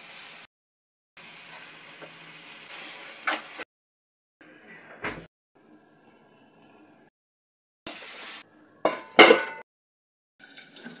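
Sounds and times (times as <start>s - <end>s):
steel plate clanking on pan: 8.9s - 9.6s.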